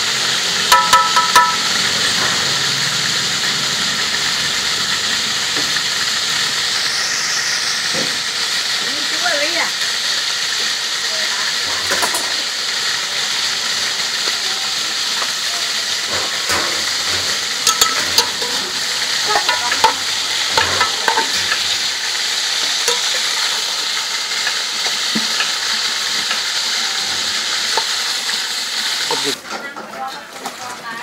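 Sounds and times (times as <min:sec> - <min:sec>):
chicken sizzling in hot oil: 0:00.0 - 0:31.0
metal tongs clinking on pot: 0:17.6 - 0:21.6, 0:22.8 - 0:23.4.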